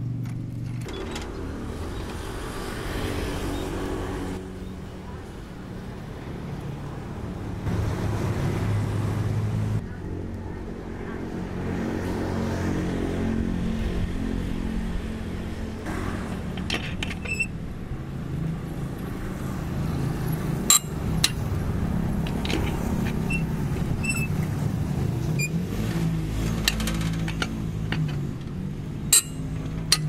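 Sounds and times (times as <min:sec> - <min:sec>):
lug wrench clinking on wheel nuts: 0:20.6 - 0:21.5, 0:26.4 - 0:30.0
sharp metal clank: 0:29.1 - 0:30.0.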